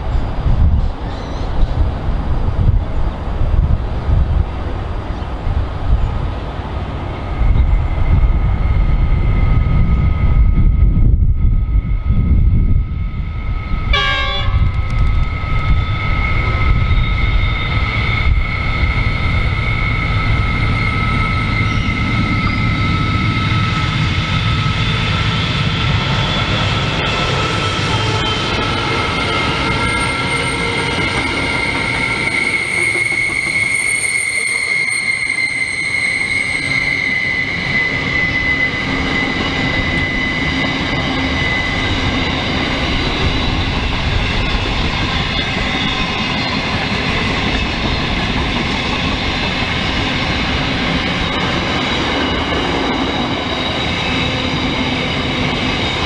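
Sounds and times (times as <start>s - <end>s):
locomotive engines rumbling: 0.0s - 56.0s
high-pitched wheel squeal: 12.8s - 56.0s.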